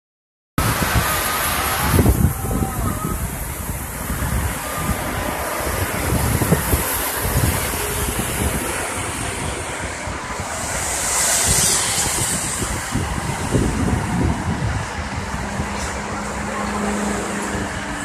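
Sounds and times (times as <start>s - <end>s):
expressway traffic roar: 0.6s - 18.0s
wind buffeting microphone: 0.6s - 18.0s.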